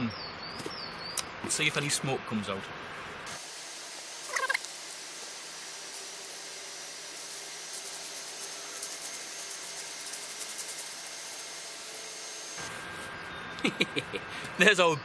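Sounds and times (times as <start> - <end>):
fire hissing: 2.9 - 14.6.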